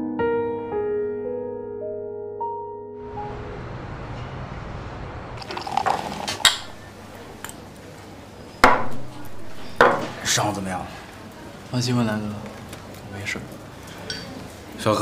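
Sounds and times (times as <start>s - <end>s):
beer liquid sounds: 5.4s - 8.0s
glass knocks: 8.6s - 9.2s, 9.8s - 10.2s.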